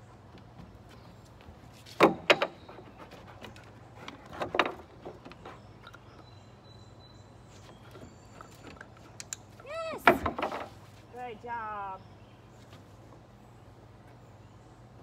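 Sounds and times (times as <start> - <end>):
dog landing on wooden boards: 1.8 - 2.8, 10.0 - 10.9.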